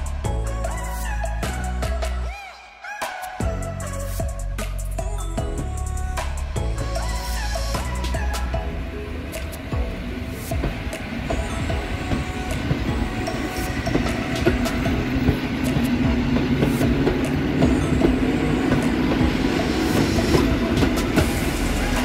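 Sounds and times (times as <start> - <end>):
electric train hum: 3.4 - 22.0
train wheels clicking over rail joints: 7.8 - 22.0.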